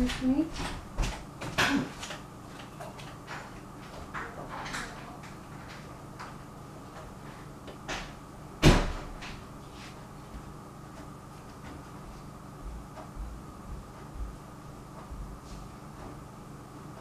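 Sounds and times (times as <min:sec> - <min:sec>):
door banging shut: 0:08.6 - 0:09.3.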